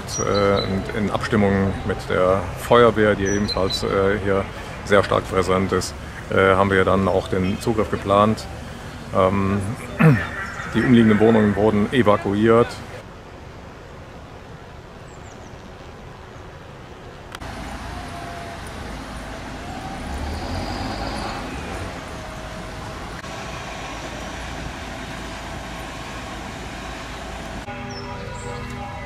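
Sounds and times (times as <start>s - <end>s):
vehicle engine: 0.0s - 13.0s, 17.3s - 29.0s
traffic rumble: 0.0s - 29.0s.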